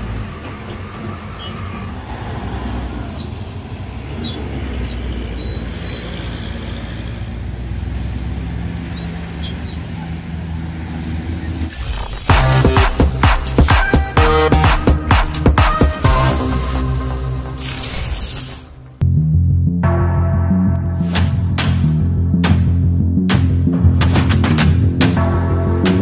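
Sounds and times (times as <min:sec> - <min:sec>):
diesel truck engine labouring: 0:00.0 - 0:17.8
high squeaks: 0:03.9 - 0:07.1, 0:08.9 - 0:10.1
loud electronic music: 0:11.7 - 0:17.9, 0:19.0 - 0:26.0.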